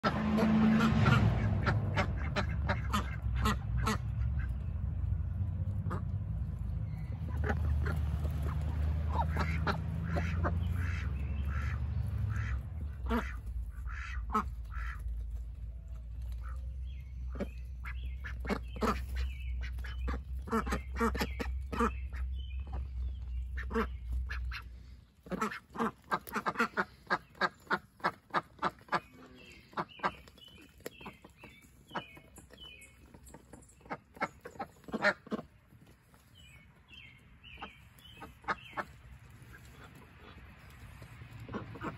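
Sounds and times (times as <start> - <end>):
low rumble: 0.0 - 25.3
ducks quacking: 0.0 - 41.9.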